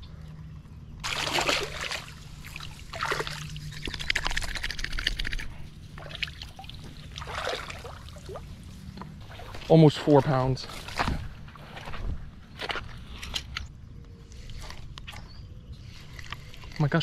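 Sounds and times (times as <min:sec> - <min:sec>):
water splashing and trickling: 0:01.0 - 0:11.8.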